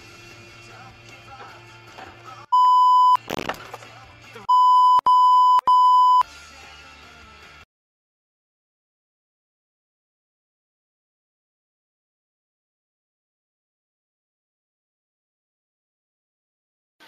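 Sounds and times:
quiet background music: 0:00.0 - 0:04.9
censor bleeps: 0:02.5 - 0:03.2, 0:04.5 - 0:06.2.

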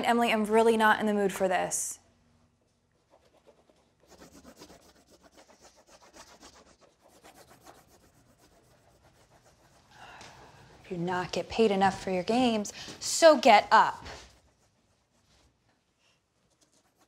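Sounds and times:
scratching of colouring on paper: 0:03.0 - 0:12.7, 0:13.3 - 0:17.0.

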